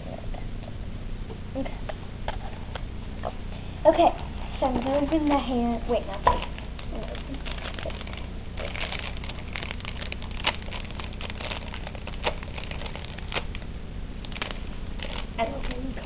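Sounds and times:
plastic packaging crinkling: 4.5 - 16.0.

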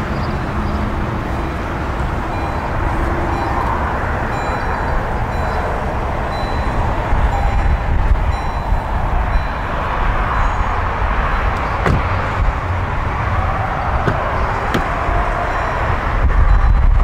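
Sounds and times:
low outdoor rumble: 0.0 - 17.0
car door clicks: 11.5 - 12.2, 14.0 - 14.9
car door opening: 11.5 - 12.4, 13.9 - 15.0.

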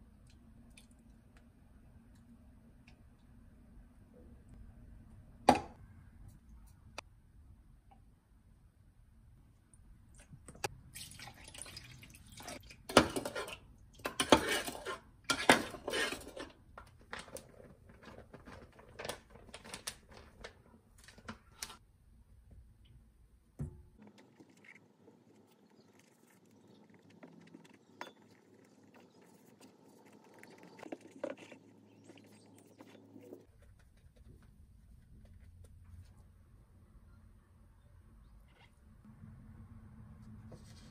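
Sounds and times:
vinegar pouring into a jug: 10.9 - 12.6.

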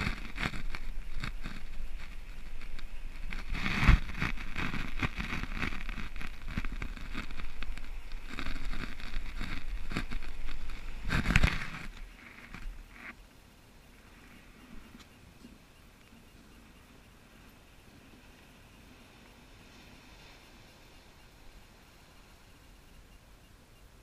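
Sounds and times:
surf washing: 13.7 - 23.5.

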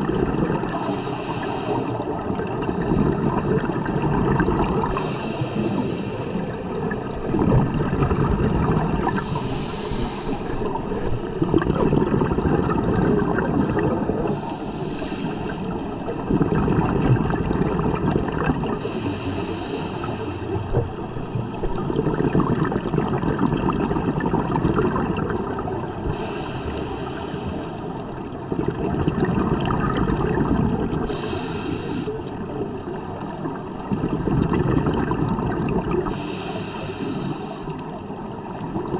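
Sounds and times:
exhaled bubbles gurgling: 0.0 - 38.9
regulator hissing inhale: 0.7 - 2.4, 4.8 - 7.2, 9.0 - 11.3, 14.1 - 16.2, 18.7 - 21.0, 26.0 - 28.2, 31.0 - 32.5, 36.0 - 38.2.

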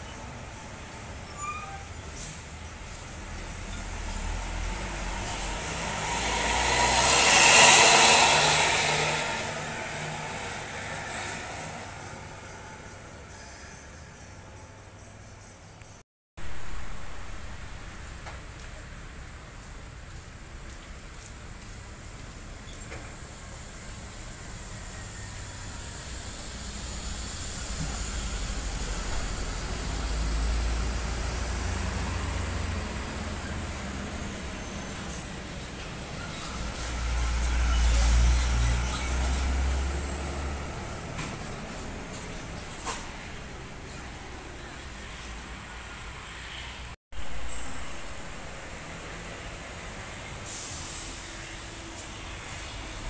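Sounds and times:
bus driving past: 0.0 - 15.4, 16.4 - 53.0.

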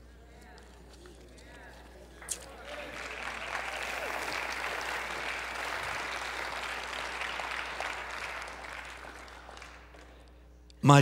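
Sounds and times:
congregation applauding: 2.2 - 10.3.

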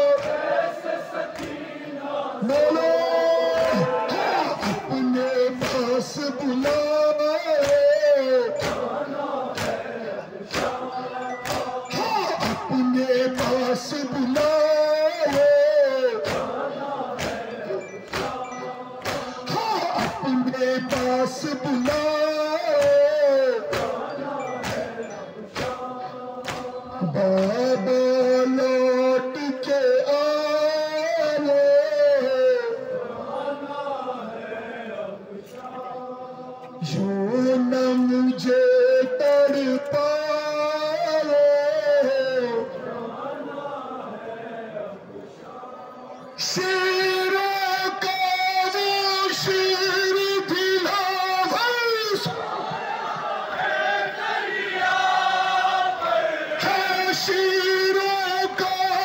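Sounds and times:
lead voice holding a long note: 0.0 - 0.5, 2.4 - 33.0
crowd beating chests: 0.0 - 30.5
men chanting a lament: 0.0 - 59.0.

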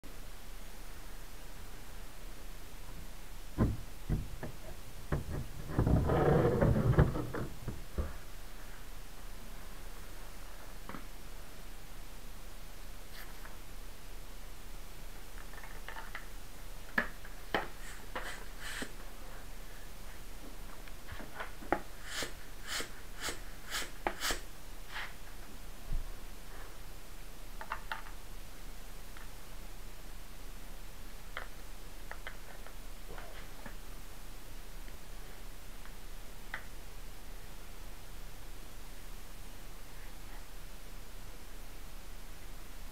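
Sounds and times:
hand pump air hiss: 17.7 - 19.0, 22.0 - 25.2.

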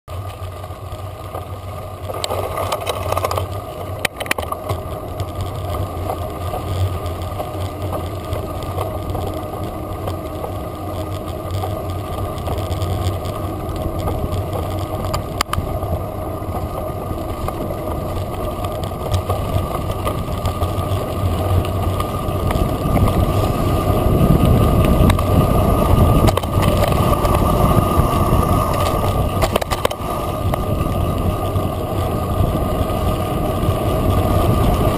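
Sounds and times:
wind rushing: 22.3 - 32.9.

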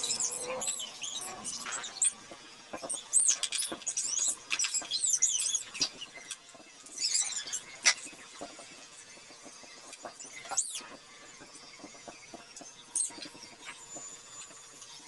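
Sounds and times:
high chirps and squeaks: 0.0 - 15.0.

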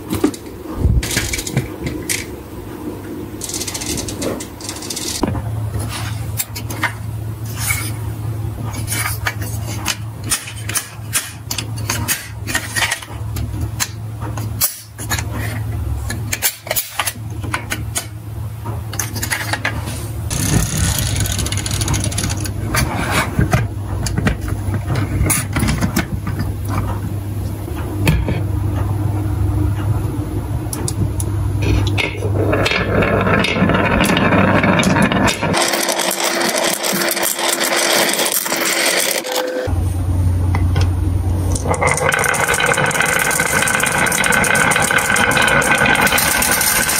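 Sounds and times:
toy truck clicking and rattling: 3.4 - 5.2, 20.3 - 22.5, 32.6 - 39.7, 41.6 - 46.9
marbles rolling down wooden slope: 20.3 - 22.5, 32.2 - 39.7, 41.6 - 46.9
low steady hum: 39.4 - 46.9.

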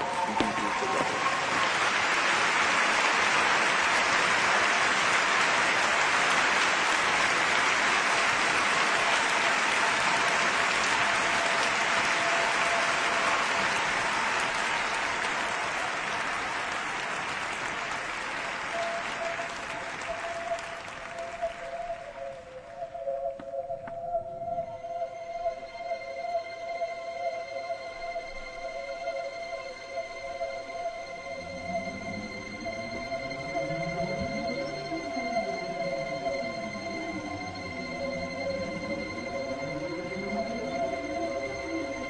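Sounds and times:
audience applause: 0.0 - 23.0.

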